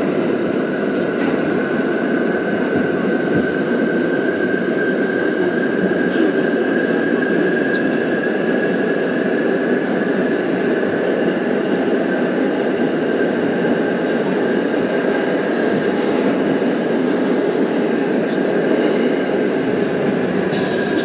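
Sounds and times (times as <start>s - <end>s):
subway train wheels rumbling on rail: 0.0s - 21.0s.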